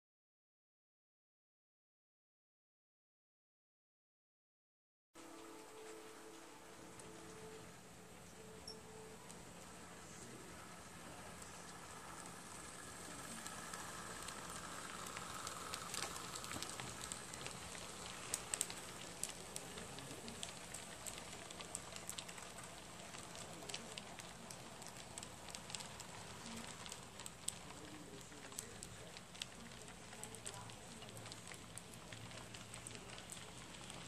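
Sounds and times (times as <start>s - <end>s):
faint steady hum: 5.2s - 34.0s
model train wheels clicking: 9.7s - 34.0s.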